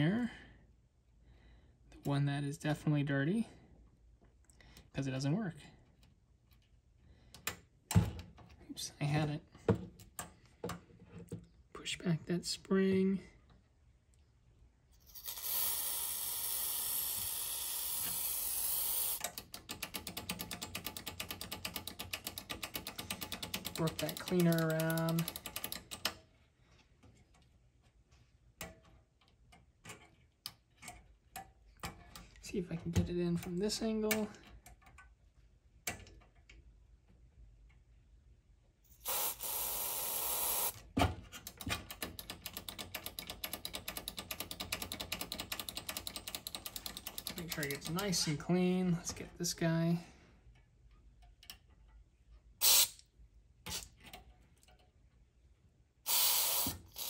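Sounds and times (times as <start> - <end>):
aerosol spray hissing: 39.0 - 40.7, 56.1 - 57.0.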